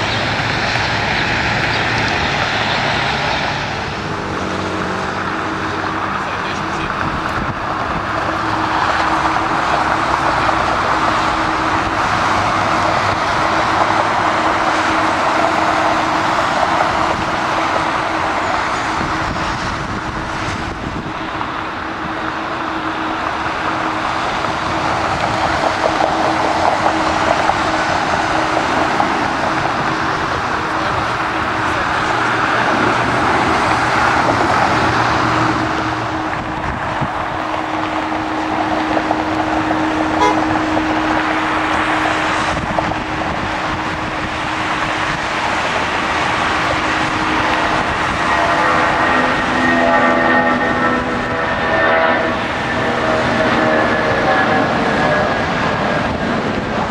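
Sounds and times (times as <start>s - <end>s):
distant engines roaring: 0.0s - 56.9s.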